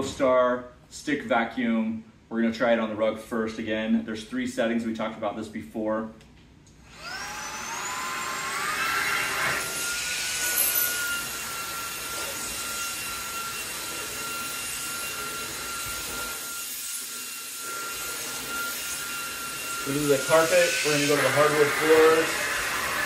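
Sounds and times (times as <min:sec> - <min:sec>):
stick vacuum motor whining: 0:06.9 - 0:23.0
vacuum rushing air on rug: 0:06.9 - 0:23.0.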